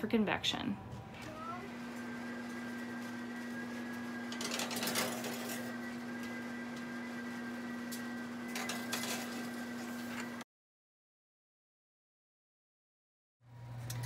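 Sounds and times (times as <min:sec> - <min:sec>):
oven machine hum: 0:00.0 - 0:10.4, 0:13.4 - 0:14.0.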